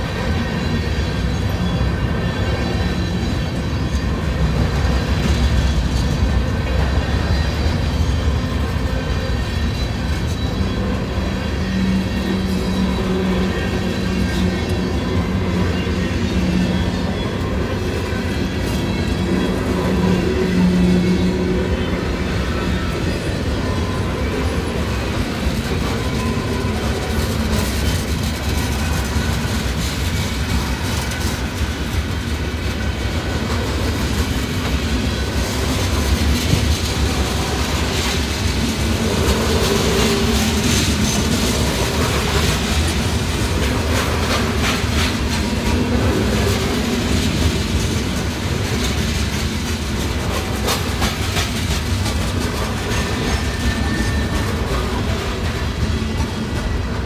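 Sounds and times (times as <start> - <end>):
freight train rolling past: 0.0 - 57.0
train wheel clicks: 25.2 - 57.0.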